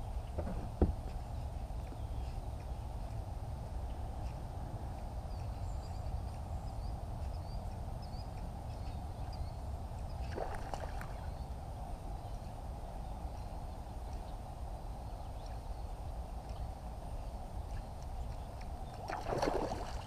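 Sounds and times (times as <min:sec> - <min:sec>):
low river rumble: 0:10.1 - 0:12.2, 0:18.8 - 0:20.0.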